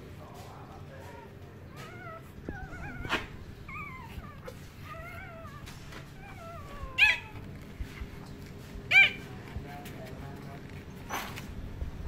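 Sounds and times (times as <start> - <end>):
puppy crying high squeaks: 1.8 - 7.5, 8.9 - 9.3.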